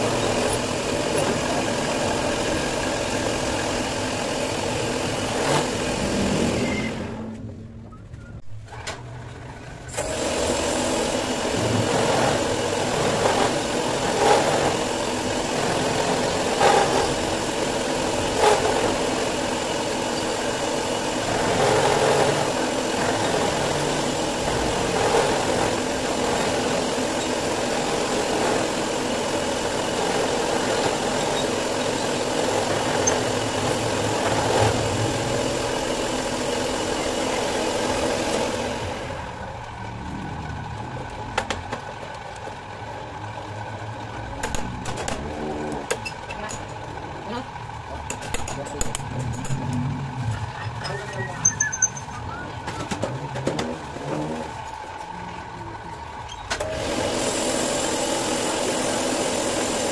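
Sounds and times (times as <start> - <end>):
milling machine motor hum: 0.0 - 7.2, 9.9 - 59.9
end mill grinding metal: 0.0 - 7.4, 9.9 - 42.6.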